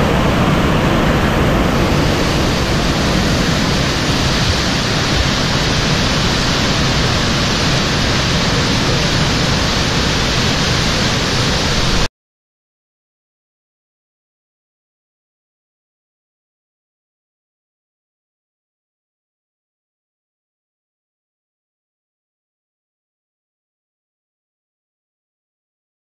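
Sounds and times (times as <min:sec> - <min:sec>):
churning white water rushing: 0:00.0 - 0:12.1.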